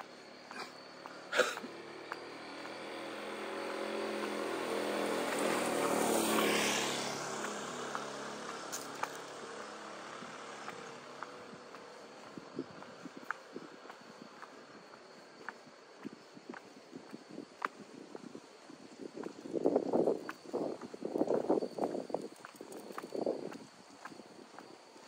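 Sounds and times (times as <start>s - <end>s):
light footsteps: 0.0s - 25.0s
vehicle engine passing: 1.6s - 12.7s.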